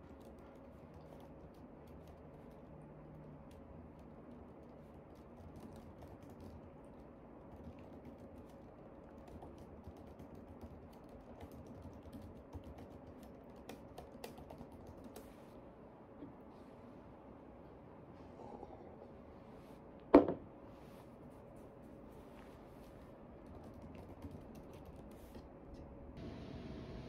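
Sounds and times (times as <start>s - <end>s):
typing on laptop keyboard: 0.0s - 15.3s, 23.4s - 25.4s.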